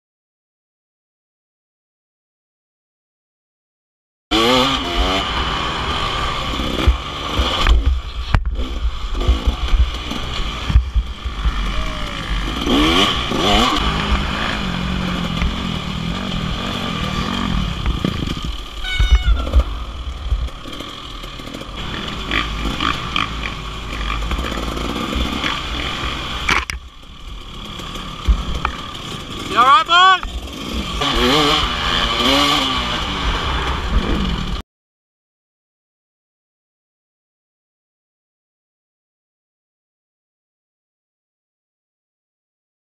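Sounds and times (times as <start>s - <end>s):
dirt bike engine revving: 4.3s - 34.6s.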